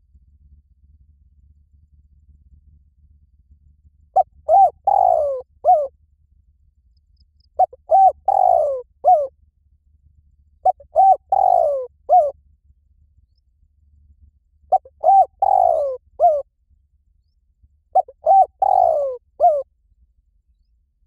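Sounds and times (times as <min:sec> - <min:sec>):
dove cooing: 0:04.2 - 0:05.9, 0:07.6 - 0:09.3, 0:10.6 - 0:12.3, 0:14.7 - 0:16.5, 0:18.0 - 0:19.7.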